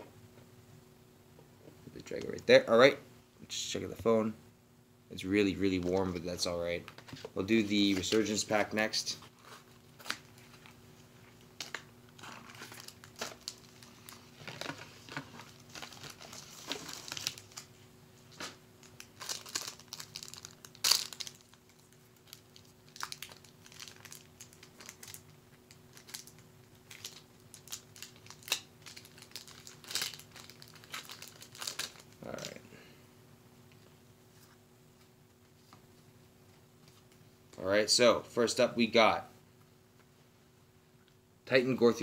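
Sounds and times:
faint steady hum: 0:00.0 - 0:42.0
plastic wrapper crinkling and tearing: 0:09.4 - 0:10.8, 0:11.5 - 0:17.7, 0:18.8 - 0:32.6.

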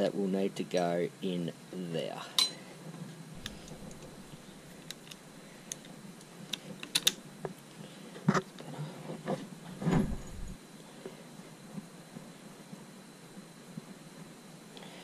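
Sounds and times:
small metal parts clicking: 0:03.4 - 0:05.9, 0:06.5 - 0:07.2.

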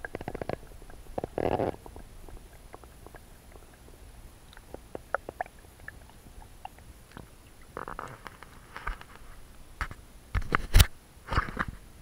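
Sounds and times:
crackly bursts: 0:00.0 - 0:09.3.

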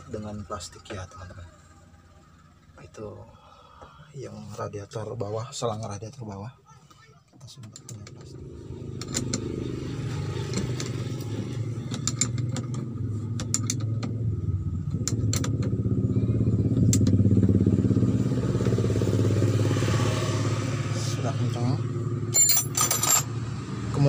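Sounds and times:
vehicle engine running: 0:00.0 - 0:04.6, 0:07.8 - 0:24.0
wrench clicking on metal: 0:11.8 - 0:12.8.

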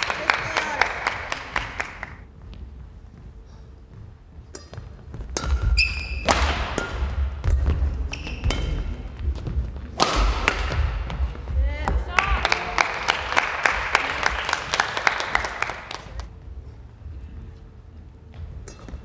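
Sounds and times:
shoes squeaking on court: 0:02.4 - 0:10.0
rackets striking shuttlecock: 0:04.4 - 0:12.0.

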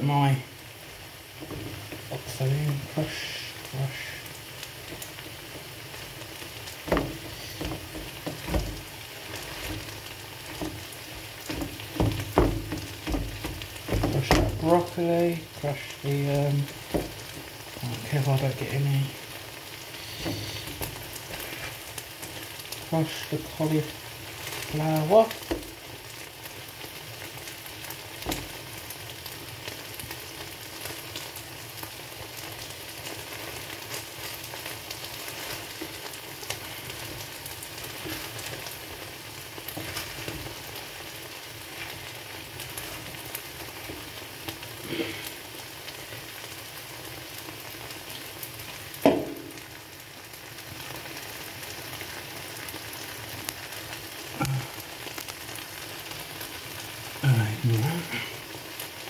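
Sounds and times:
food sizzling in a frying pan: 0:00.0 - 0:59.0
wooden spoon scraping and knocking: 0:06.8 - 0:14.7, 0:37.9 - 0:38.6.

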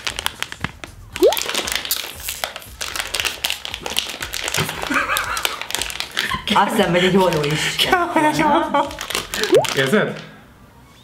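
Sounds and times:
plastic snack bag crinkling: 0:00.0 - 0:00.6, 0:01.2 - 0:06.5, 0:08.8 - 0:10.0
background music: 0:00.7 - 0:04.4.

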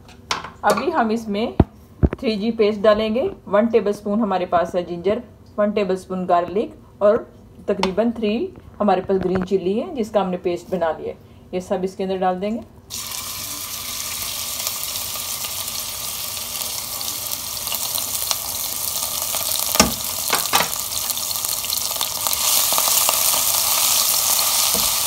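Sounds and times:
paste sizzling in hot oil: 0:12.9 - 0:25.0.

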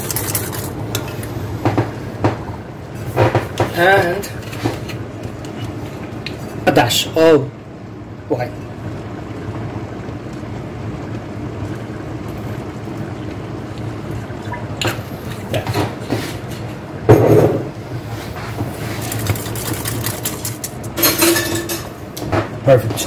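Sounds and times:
wire whisk in sauce: 0:00.0 - 0:01.3
sauce simmering: 0:07.5 - 0:17.0.

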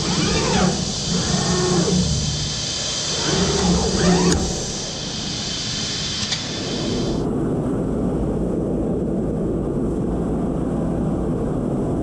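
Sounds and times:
high hiss: 0:00.0 - 0:07.2
low rumble of machines running: 0:00.0 - 0:12.0.

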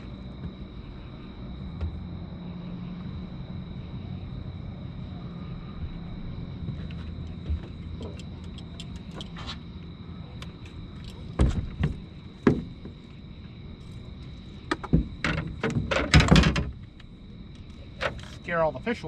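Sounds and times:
knocks and thumps on a boat: 0:06.6 - 0:08.3, 0:11.2 - 0:13.0, 0:14.6 - 0:16.9.

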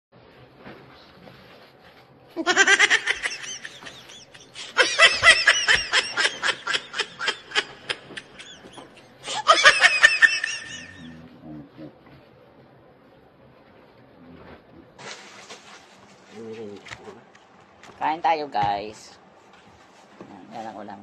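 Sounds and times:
high-pitched laughter: 0:02.4 - 0:11.2.

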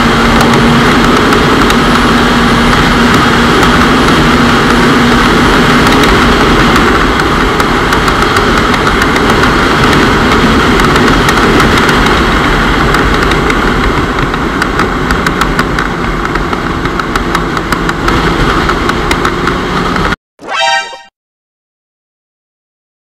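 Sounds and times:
wind rush on microphone: 0:00.0 - 0:20.1
motorcycle engine and road noise: 0:00.0 - 0:20.2
brief pitched tone: 0:20.4 - 0:21.2.

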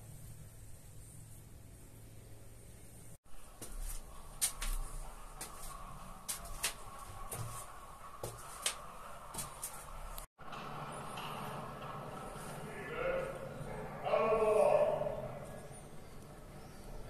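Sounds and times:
footsteps on brick stairs: 0:03.4 - 0:10.3.

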